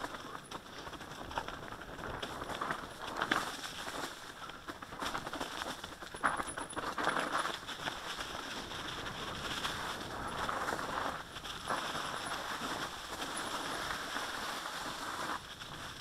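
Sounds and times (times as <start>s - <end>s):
tyres crunching over leaves and stones: 0.0s - 15.9s
wind noise on microphone: 5.0s - 16.0s.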